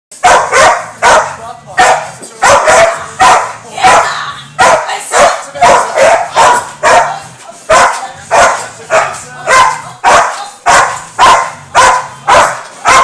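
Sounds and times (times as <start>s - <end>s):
dog barking: 0.2s - 13.0s.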